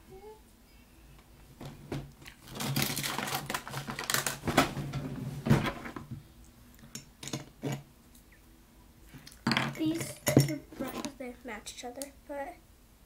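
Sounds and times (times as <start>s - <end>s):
small items rummaged through: 2.4s - 4.8s.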